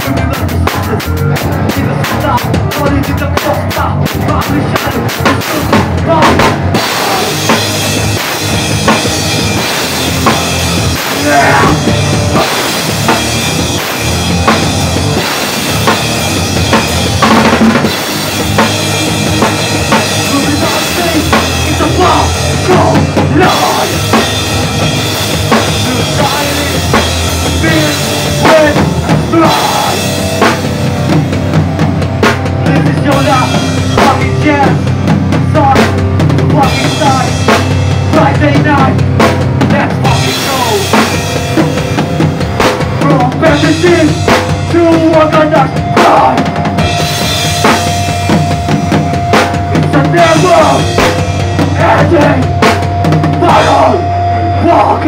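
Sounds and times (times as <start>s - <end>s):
drum kit beat: 0.0s - 55.0s
electric guitars: 0.0s - 55.0s.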